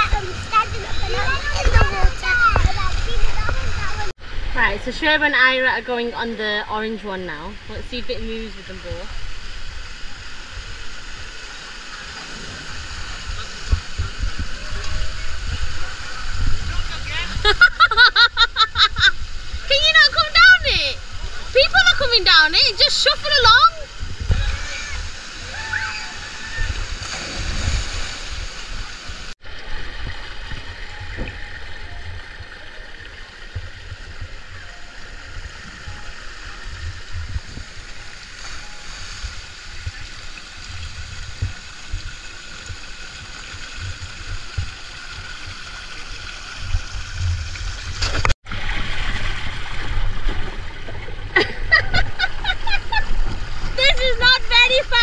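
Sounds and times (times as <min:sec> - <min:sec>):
water rushing down slide: 0:00.0 - 0:55.0
voices: 0:19.6 - 0:26.8, 0:53.8 - 0:55.0
splash into pool: 0:24.2 - 0:29.3, 0:43.2 - 0:51.7.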